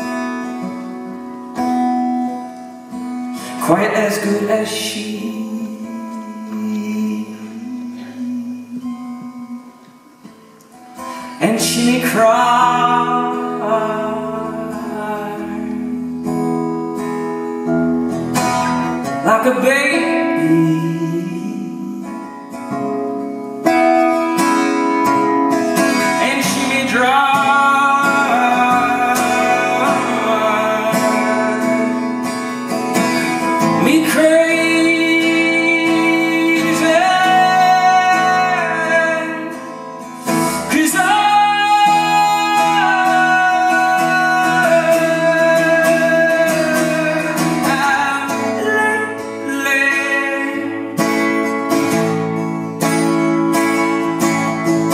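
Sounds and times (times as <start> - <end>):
acoustic guitar: 0.0 - 54.9
man singing long notes: 3.5 - 10.2, 11.2 - 16.2, 26.1 - 51.0.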